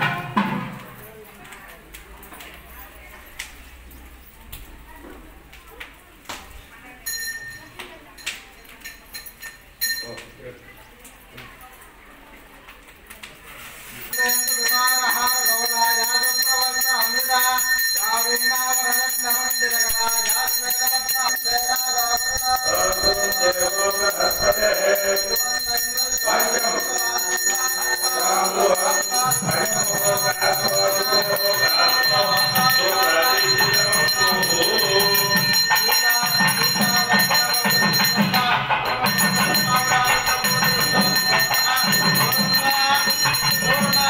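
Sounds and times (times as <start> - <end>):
hand bell ringing: 7.0 - 10.3, 14.1 - 44.0
chanted mantras: 14.6 - 44.0.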